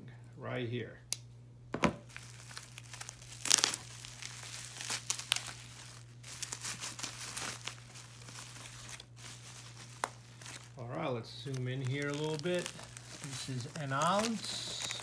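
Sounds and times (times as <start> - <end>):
bubble wrap crackling and rustling: 2.0 - 15.0.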